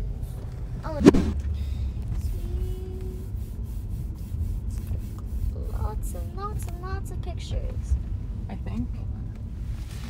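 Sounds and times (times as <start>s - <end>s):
car cabin road rumble: 0.0s - 10.0s
sharp knock: 1.0s - 1.4s.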